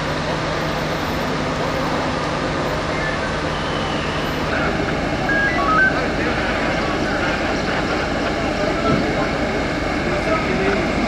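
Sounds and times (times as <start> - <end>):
vehicle engines rumbling: 0.0 - 11.0
low hum: 2.2 - 11.0
short high tones: 5.2 - 6.2.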